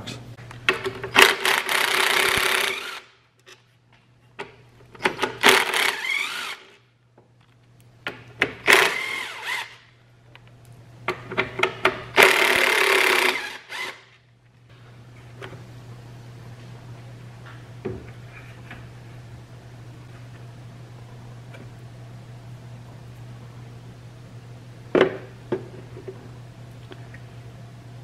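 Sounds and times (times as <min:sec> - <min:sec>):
cordless drill whining: 0:01.2 - 0:03.0, 0:05.5 - 0:06.7, 0:08.7 - 0:09.8, 0:12.2 - 0:14.0.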